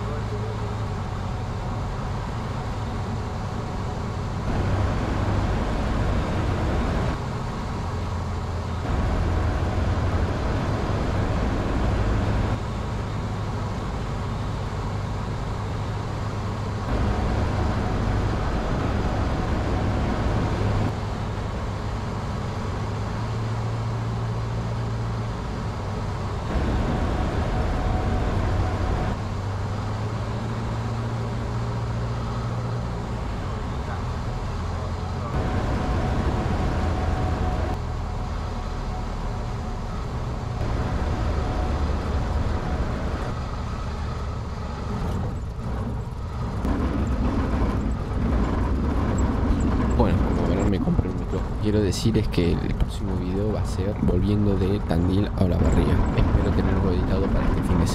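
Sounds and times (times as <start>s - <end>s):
airplane engine droning: 0.0s - 57.9s.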